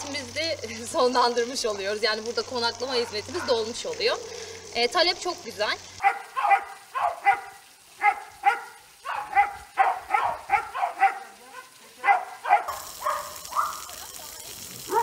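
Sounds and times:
sprinkler water spray hissing: 0:00.0 - 0:15.0
dog barking: 0:06.0 - 0:14.0.

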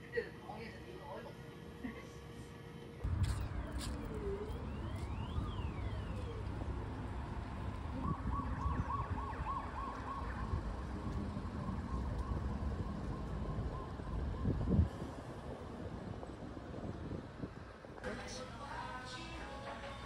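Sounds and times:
wind rumbling on microphone: 0:03.0 - 0:18.1.

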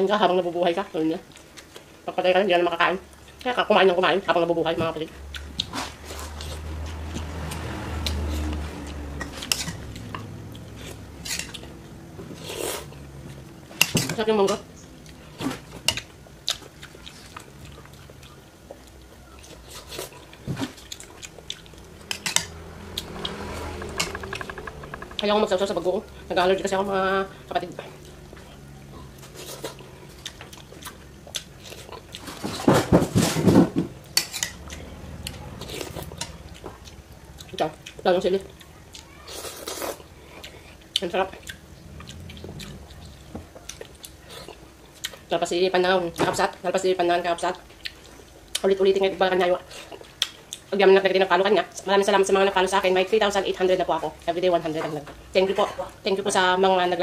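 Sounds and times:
person chewing food: 0:05.3 - 0:13.5, 0:14.8 - 0:25.3, 0:27.3 - 0:32.6, 0:34.0 - 0:45.3, 0:47.7 - 0:48.7
low hum: 0:17.3 - 0:32.2, 0:33.8 - 0:38.8, 0:40.1 - 0:45.3.

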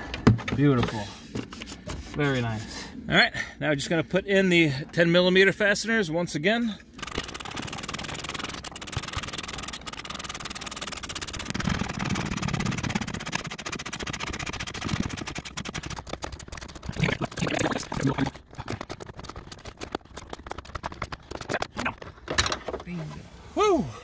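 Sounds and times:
hand ratchet clicking rapidly: 0:07.0 - 0:21.8.

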